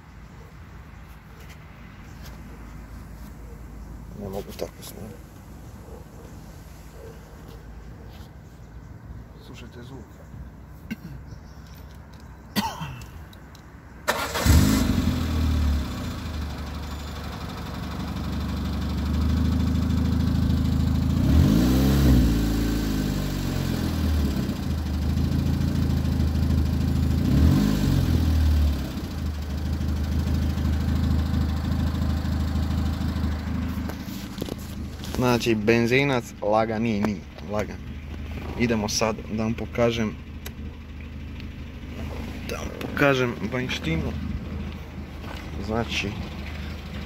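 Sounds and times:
car engine starting and idling: 0:13.1 - 0:47.0
car engine revving: 0:14.1 - 0:16.7, 0:19.3 - 0:26.1, 0:26.8 - 0:35.6, 0:41.4 - 0:47.0.

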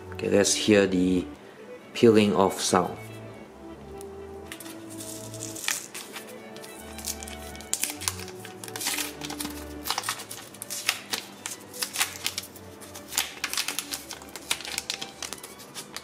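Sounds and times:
quiet background music: 0:00.0 - 0:16.0
plastic film peeling crackle: 0:04.4 - 0:16.0.

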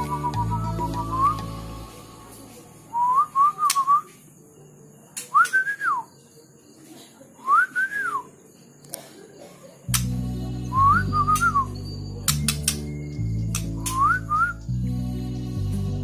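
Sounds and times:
whistled notes: 0:00.0 - 0:01.5, 0:02.9 - 0:04.2, 0:05.3 - 0:06.1, 0:07.4 - 0:08.3, 0:10.7 - 0:14.7.

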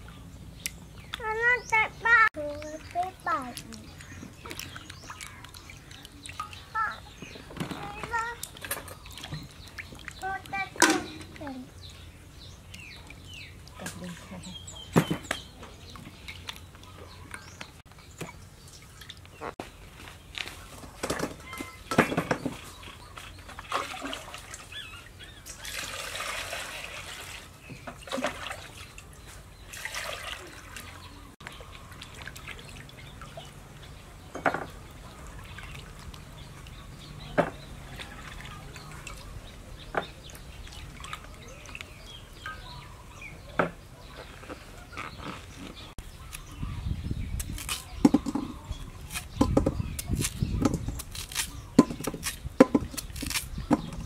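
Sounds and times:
water splashing in bowl: 0:01.1 - 0:11.5, 0:21.1 - 0:42.6.

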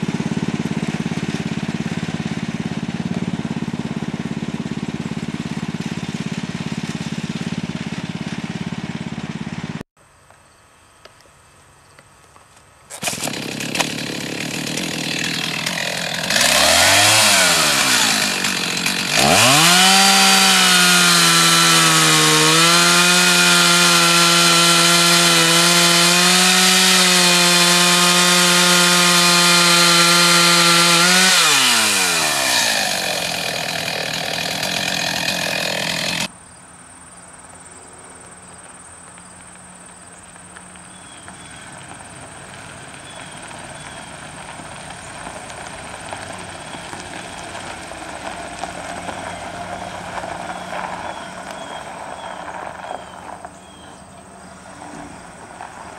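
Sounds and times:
chainsaw cutting a log: 0:00.0 - 0:09.8, 0:12.9 - 0:36.3, 0:44.8 - 0:51.8.

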